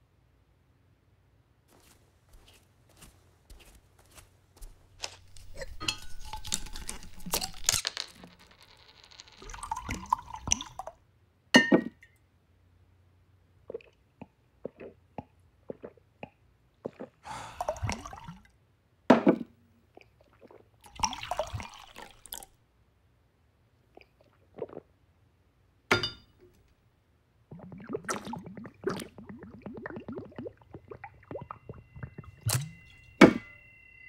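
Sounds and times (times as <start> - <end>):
liquid sloshing: 5.0 - 7.8, 9.4 - 10.9, 16.9 - 18.4, 20.0 - 22.5, 27.5 - 33.5
glass clicks: 5.0 - 8.4, 25.9 - 26.3, 31.0 - 33.6
person gulping and swallowing: 5.2 - 7.6, 13.6 - 18.4, 23.9 - 24.9, 27.5 - 32.9.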